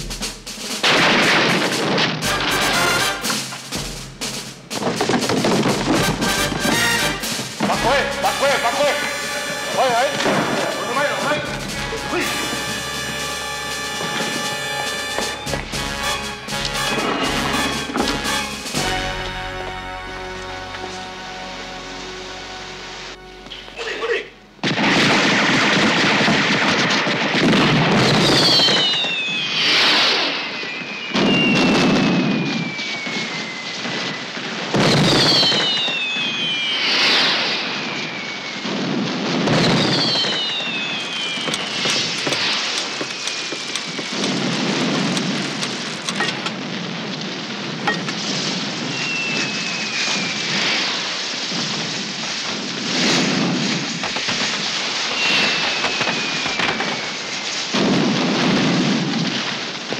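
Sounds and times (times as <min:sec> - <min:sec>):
fireworks booming: 0:00.0 - 0:59.9
fireworks crackling and fizzing: 0:00.0 - 0:59.9
falling whistles: 0:08.4 - 0:23.8, 0:27.9 - 0:44.9, 0:48.2 - 0:51.9, 0:54.4 - 0:58.1.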